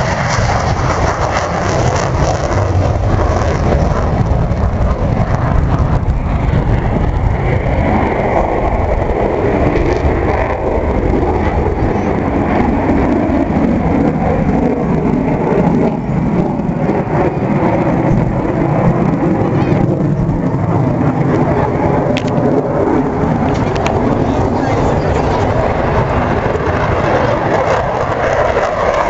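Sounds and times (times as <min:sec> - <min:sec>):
fighter jet engine roar: 0:00.0 - 0:29.0
high jet whine: 0:00.0 - 0:29.0.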